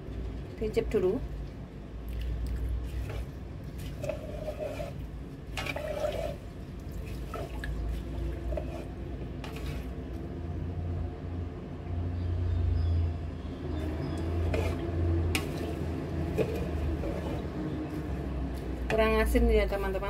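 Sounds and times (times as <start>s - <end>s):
rice and liquid sloshing while stirred: 1.2s - 10.4s, 13.7s - 20.0s.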